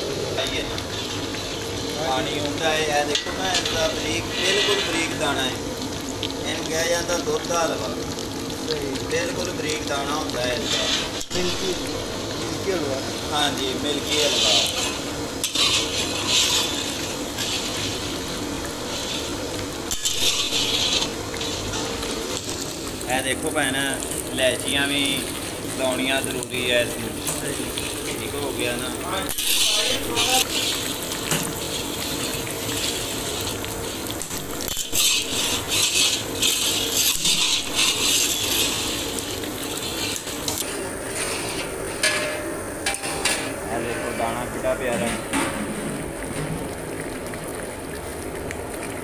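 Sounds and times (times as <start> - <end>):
metal spatula scraping iron pan: 3.3 - 5.2, 14.1 - 18.2, 19.9 - 21.9, 29.3 - 30.8, 34.7 - 39.1, 41.1 - 44.2.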